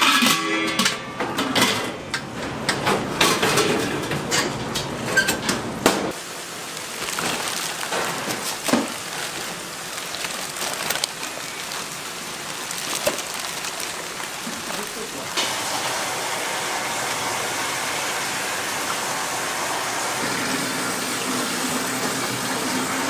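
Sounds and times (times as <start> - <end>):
metal pot and lid clattering: 0.0 - 2.0
kitchen noise hiss: 1.4 - 23.0.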